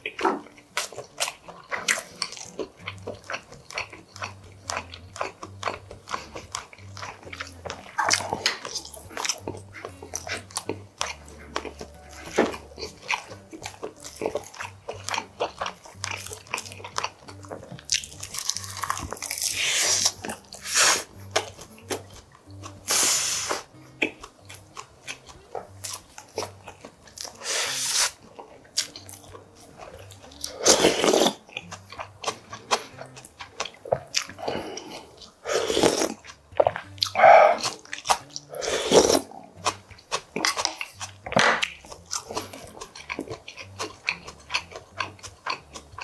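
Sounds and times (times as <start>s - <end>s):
wet chewing and smacking: 0.0s - 46.0s
loud slurps of broth: 27.4s - 28.2s, 30.6s - 31.4s, 35.4s - 36.2s, 38.6s - 39.2s.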